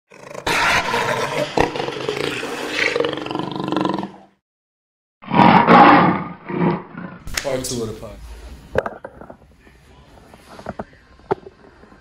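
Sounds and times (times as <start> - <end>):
big cat roaring: 0.1 - 4.3, 5.2 - 7.2.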